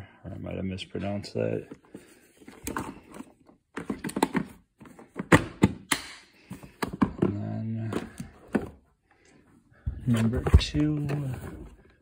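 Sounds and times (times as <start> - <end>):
plastic boxes knocking together: 3.7 - 8.8.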